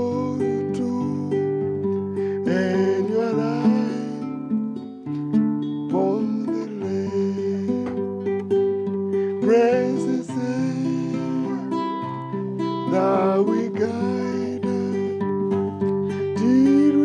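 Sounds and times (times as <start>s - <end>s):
man singing a hymn: 0.0s - 4.4s, 5.9s - 8.2s, 9.4s - 15.4s, 16.3s - 17.0s
classical guitar strummed and picked: 0.0s - 17.0s.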